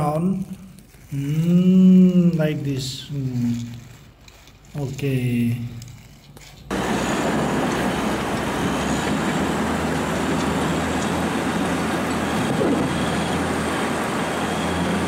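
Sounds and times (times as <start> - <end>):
bulldozer diesel engine running: 6.7 - 15.0.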